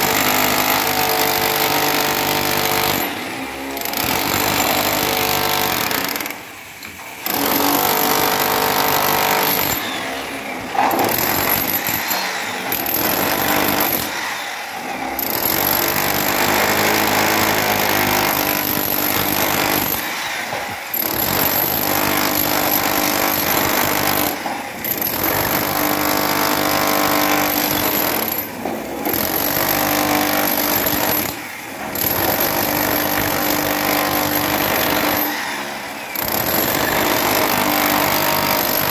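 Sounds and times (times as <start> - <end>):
demolition hammer breaking concrete: 0.0 - 38.9.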